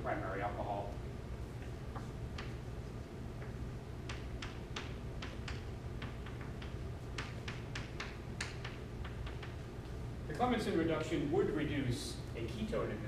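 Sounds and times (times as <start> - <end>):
chalk tapping on blackboard: 1.9 - 2.7, 3.4 - 9.6.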